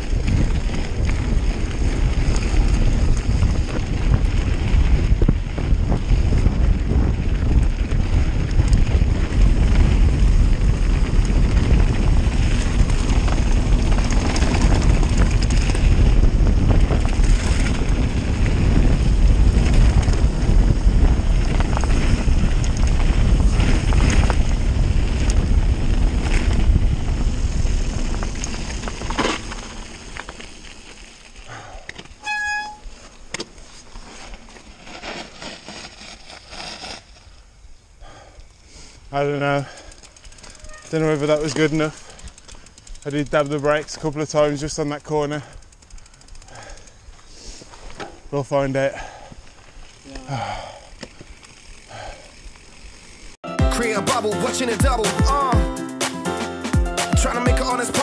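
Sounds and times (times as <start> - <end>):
wind buffeting microphone: 0.0 - 29.8.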